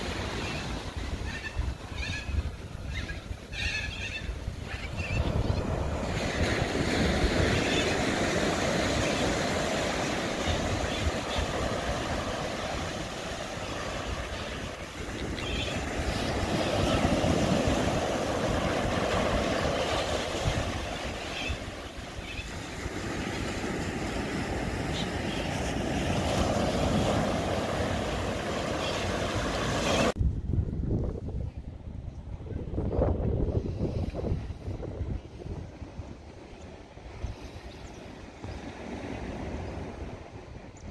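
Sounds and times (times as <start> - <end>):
small waves breaking on beach: 0.0 - 2.1, 4.7 - 30.2, 35.7 - 40.6
wind rumbling on microphone: 0.0 - 24.8, 25.5 - 40.9.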